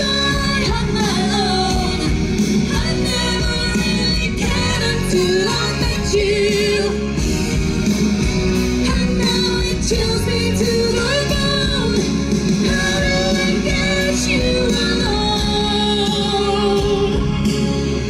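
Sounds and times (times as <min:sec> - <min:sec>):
two people singing duet: 0:00.0 - 0:07.3, 0:08.8 - 0:17.5
loud backing music: 0:00.0 - 0:18.0.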